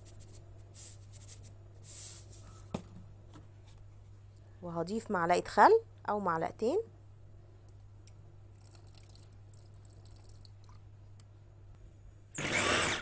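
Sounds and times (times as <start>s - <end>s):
liquid trickling into bowl: 8.5s - 10.8s
electric chopper motor: 12.4s - 13.0s.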